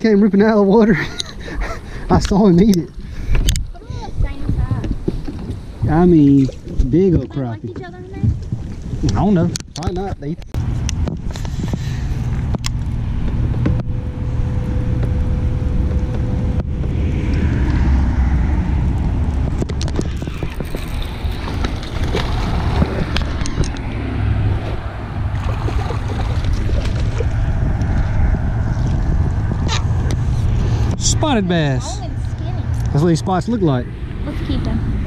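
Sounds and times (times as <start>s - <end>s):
wind buffeting microphone: 0.0s - 35.0s
fish splashing: 19.4s - 28.2s.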